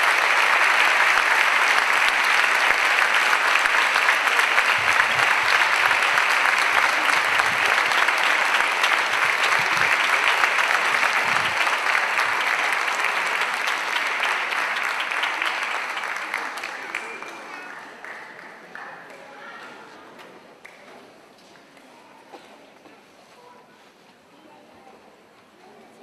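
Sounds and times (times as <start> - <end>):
audience applauding: 0.0 - 18.9.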